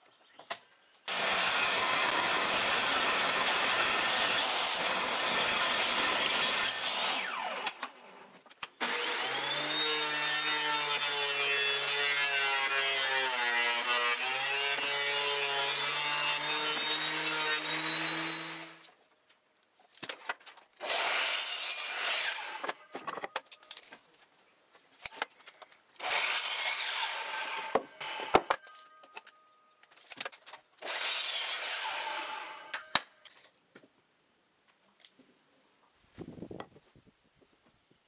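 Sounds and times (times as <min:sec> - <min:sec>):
miter saw cutting wood: 0:01.1 - 0:08.0, 0:08.8 - 0:18.9, 0:20.8 - 0:22.9, 0:26.0 - 0:28.6, 0:30.8 - 0:32.8
thickness planer whining: 0:01.1 - 0:08.0, 0:08.8 - 0:18.9, 0:26.0 - 0:29.3, 0:29.9 - 0:32.9.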